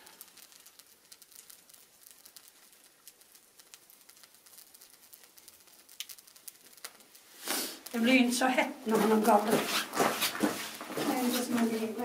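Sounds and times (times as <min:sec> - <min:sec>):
embers crackling: 0:00.0 - 0:12.0.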